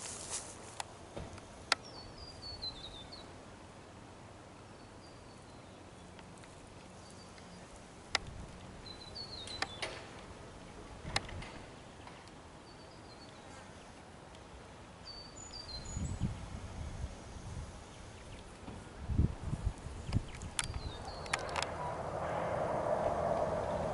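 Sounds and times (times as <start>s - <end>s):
small bird singing: 1.8s - 3.4s, 8.8s - 9.9s, 11.8s - 14.0s, 15.0s - 16.6s, 20.0s - 21.6s
sharp clicks: 20.1s - 21.8s.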